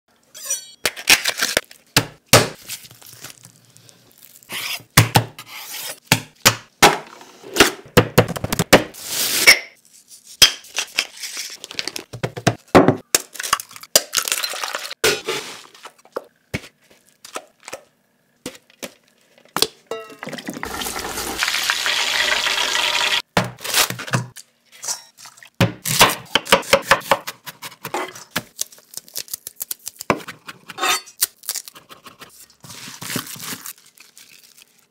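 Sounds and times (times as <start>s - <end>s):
bowls and utensils clinking: 19.9s - 21.0s.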